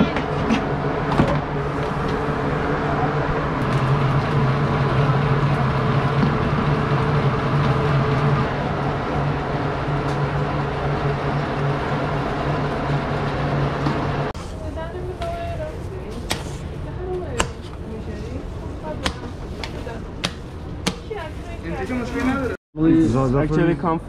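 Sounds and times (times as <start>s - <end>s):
vehicle running drone: 0.0s - 15.0s.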